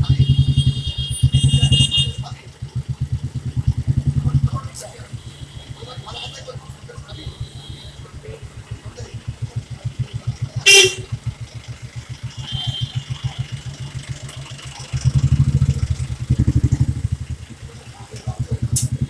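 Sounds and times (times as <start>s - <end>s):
car horn honk: 0.0s - 2.4s, 5.0s - 8.4s, 10.6s - 11.2s, 12.3s - 13.6s
vehicle engine putter: 0.0s - 19.0s
vehicle passing close by: 8.0s - 19.0s.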